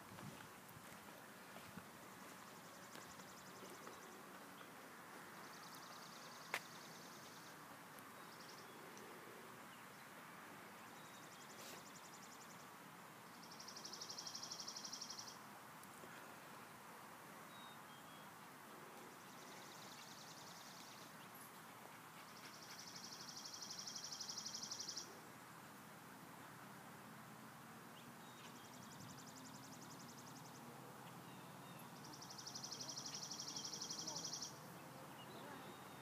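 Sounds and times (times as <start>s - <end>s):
faint outdoor hiss: 0.0s - 36.0s
songbird high-pitched trill: 13.4s - 15.4s, 22.6s - 25.1s, 31.2s - 34.6s.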